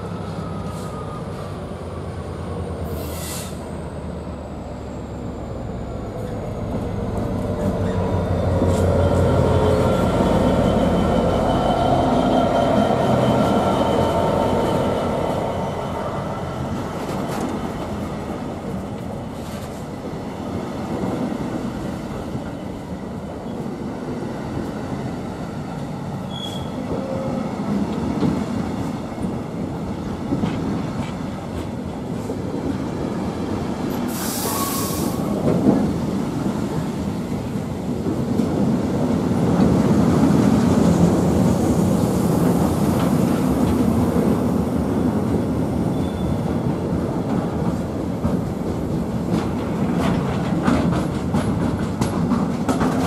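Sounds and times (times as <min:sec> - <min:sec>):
train wheels rumbling and clacking: 0:00.0 - 0:53.0.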